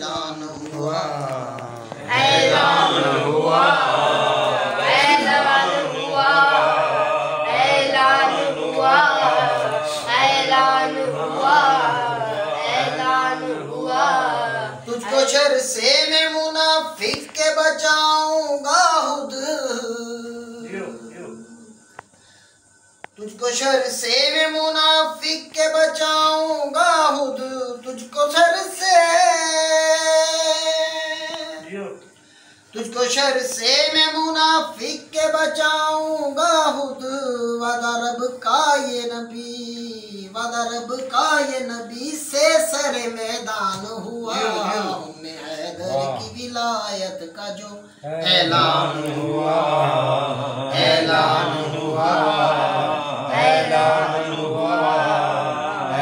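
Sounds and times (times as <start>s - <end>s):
men chanting together unaccompanied: 0.0s - 21.8s, 32.7s - 46.8s, 48.0s - 56.0s.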